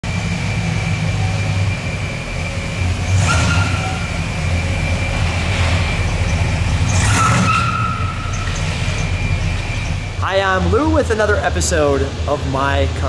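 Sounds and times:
car engine low rumble: 0:00.0 - 0:13.0
short high squeak: 0:03.2 - 0:04.2, 0:05.8 - 0:10.1.

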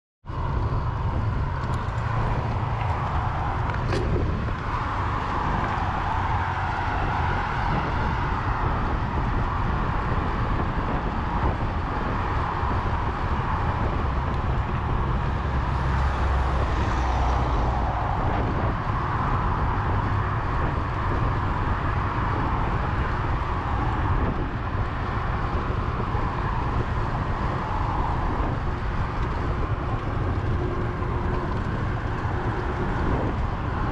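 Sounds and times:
highway car traffic: 0:00.2 - 0:33.9
wind rush on microphone: 0:00.2 - 0:33.9.

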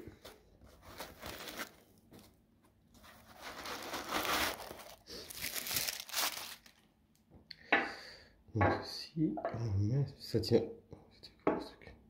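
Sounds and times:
foam rustling: 0:03.0 - 0:06.7.

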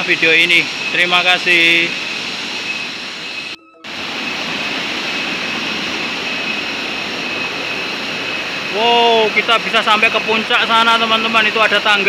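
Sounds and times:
stream and waterfall rushing: 0:00.0 - 0:12.0.

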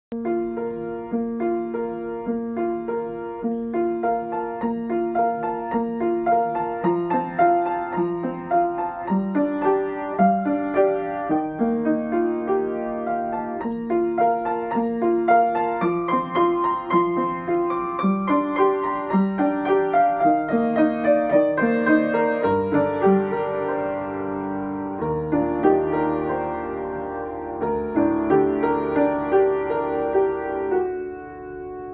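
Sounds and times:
deep piano bass notes: 0:00.1 - 0:31.9
upright piano playing: 0:00.1 - 0:31.9.

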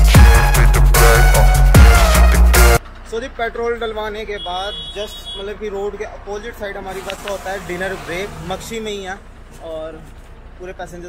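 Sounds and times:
dubstep electronic music: 0:00.0 - 0:02.8.

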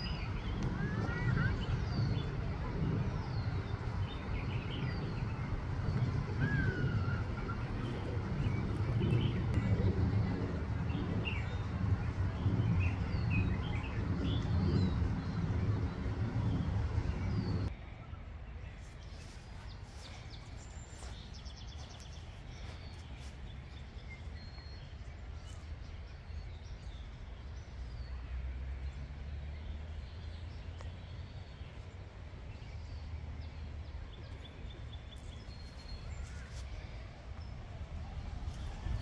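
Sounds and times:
small birds chirping: 0:00.0 - 0:17.7, 0:18.8 - 0:39.0
low steady rumble: 0:00.0 - 0:18.7.

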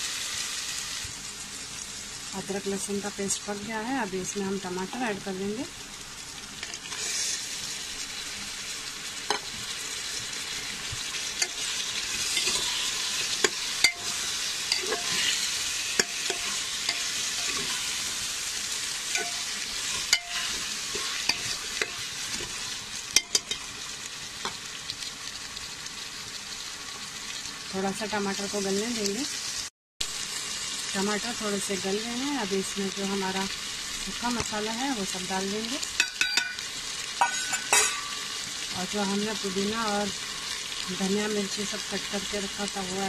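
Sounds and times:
vegetables sizzling in oil: 0:00.0 - 0:43.0
spatula scraping pot: 0:11.4 - 0:18.0, 0:19.1 - 0:22.6.

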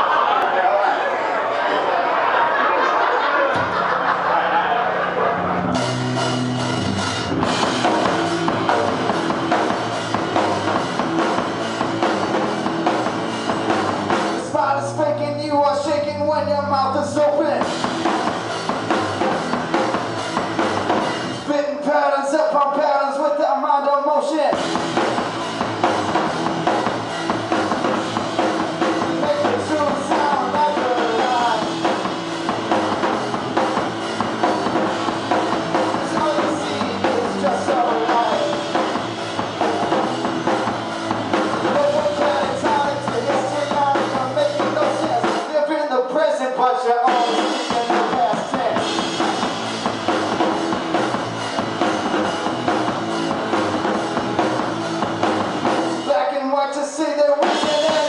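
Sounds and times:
drum kit: 0:03.5 - 0:23.6, 0:24.2 - 0:58.0
electric guitar: 0:04.8 - 0:15.1, 0:24.6 - 0:45.5
man singing: 0:14.4 - 0:17.7, 0:21.4 - 0:24.6, 0:29.0 - 0:31.9, 0:35.9 - 0:38.9, 0:41.5 - 0:49.0, 0:56.1 - 0:58.0.

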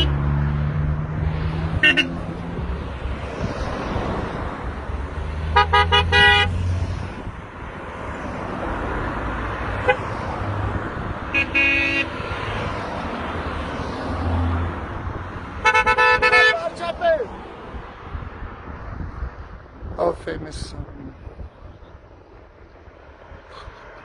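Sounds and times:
car horns honking: 0:00.0 - 0:00.2, 0:01.8 - 0:02.4, 0:05.4 - 0:06.7, 0:09.8 - 0:10.1, 0:11.3 - 0:12.6, 0:15.6 - 0:17.1
passing traffic engine and tyres: 0:00.0 - 0:24.0.

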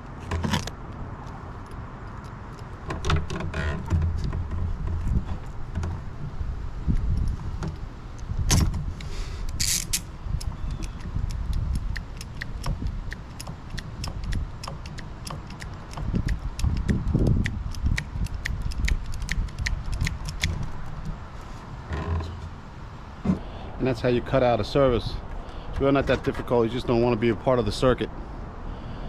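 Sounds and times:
ratcheting cable cutter clicking: 0:09.5 - 0:21.1.

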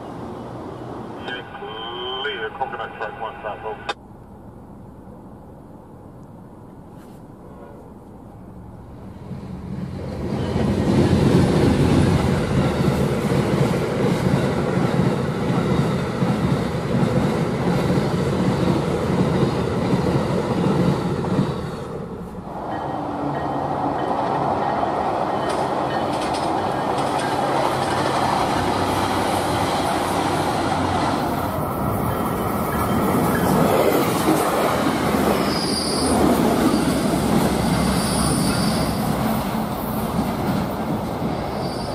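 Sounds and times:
train cars rumbling: 0:00.0 - 0:41.9
train wheels clicking over rails: 0:09.7 - 0:41.6.

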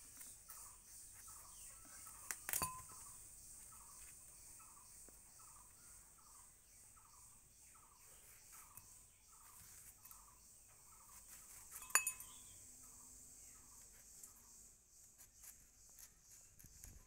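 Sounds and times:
sharp clink of glass or metal: 0:02.5 - 0:03.1, 0:11.7 - 0:12.5.

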